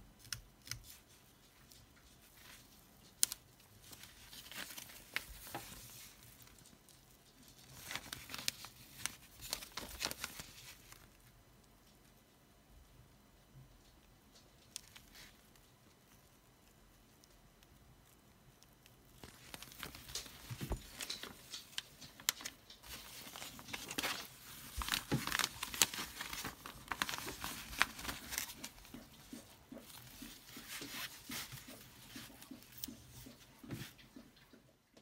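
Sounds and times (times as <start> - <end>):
plastic film crinkling: 0.3 - 12.0, 14.3 - 17.7, 18.6 - 34.0.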